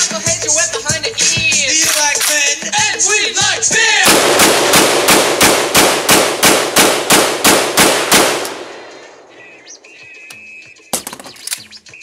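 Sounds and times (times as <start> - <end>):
gunshot echo: 4.0 - 9.3
rifle shots: 4.0 - 9.3.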